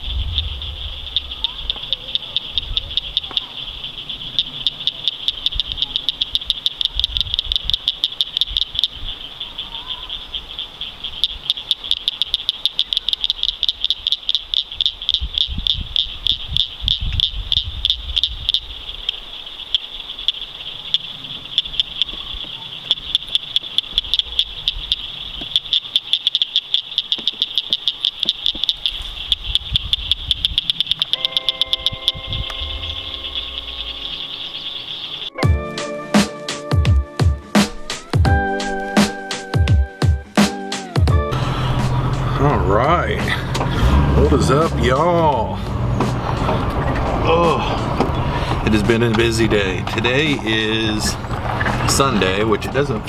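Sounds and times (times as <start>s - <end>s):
low rumble: 0.0s - 1.4s, 41.2s - 53.0s
frogs trilling chorus: 0.0s - 35.4s, 42.3s - 53.0s.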